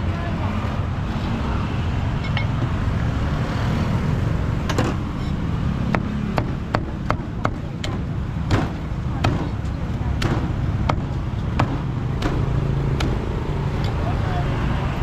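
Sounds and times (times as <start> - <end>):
street traffic rumble: 0.0 - 15.0
cleaver chopping on wooden block: 5.9 - 9.6.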